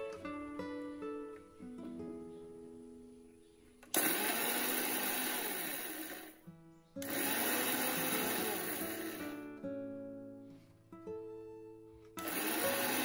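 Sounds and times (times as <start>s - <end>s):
mixer grinder grinding spices: 4.0s - 6.3s, 7.0s - 9.4s, 12.2s - 13.0s.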